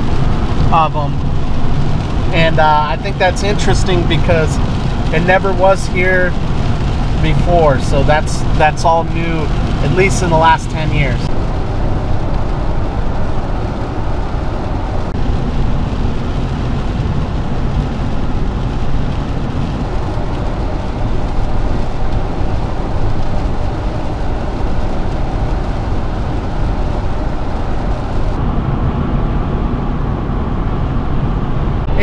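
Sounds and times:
road hiss: 0.0 - 16.3
van road noise rumble: 0.0 - 32.0.

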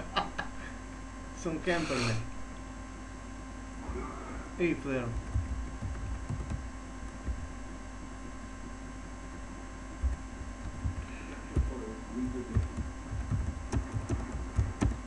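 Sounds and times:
electrical mains hum: 0.0 - 15.0
dull low thumps: 5.1 - 15.0.

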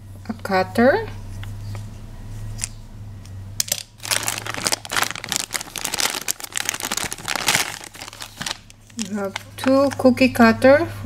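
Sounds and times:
plastic bag crinkling: 3.6 - 10.1.

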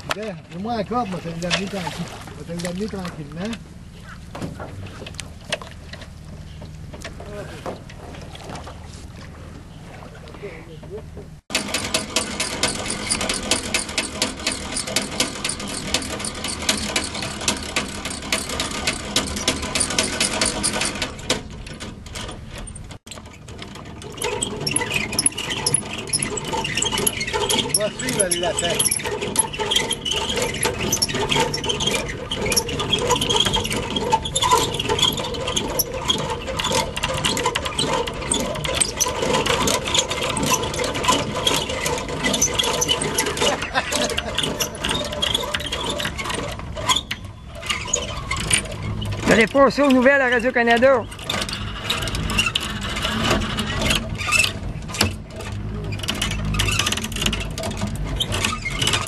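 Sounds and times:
winch gears clattering: 0.0 - 8.8, 11.0 - 59.0
low steady rumble: 0.0 - 11.4.

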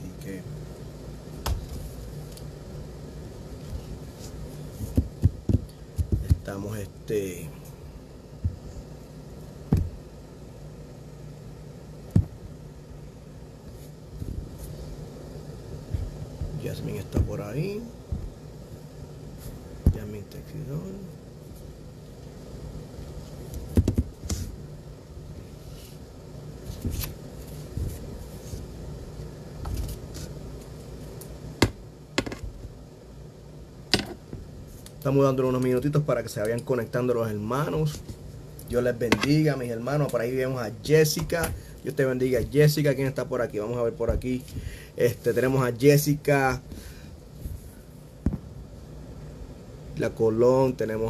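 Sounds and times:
room noise hum: 0.0 - 51.0
soft bumps: 3.7 - 6.6, 15.8 - 18.4.

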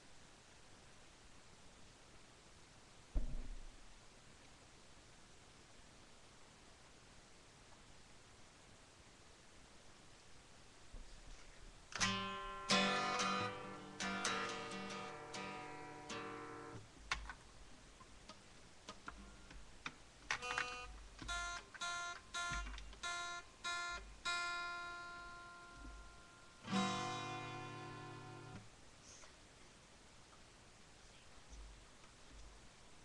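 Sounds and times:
acoustic guitar picked notes: 11.9 - 16.8, 20.4 - 28.6
acoustic guitar strummed chords: 12.0 - 16.8, 20.4 - 28.6.

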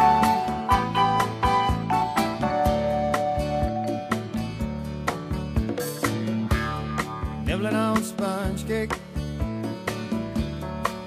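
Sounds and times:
relaxed country-pop music: 0.0 - 11.0.

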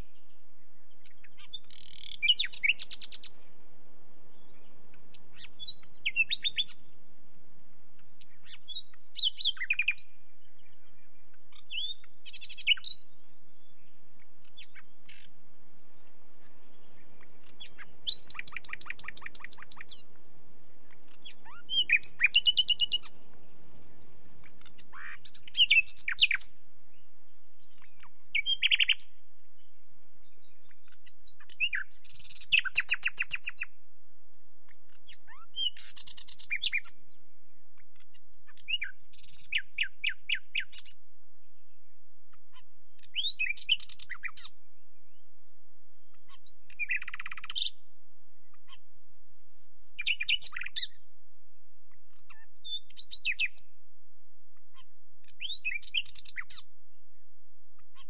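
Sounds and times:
nightingale singing: 0.0 - 53.8, 54.5 - 58.0.

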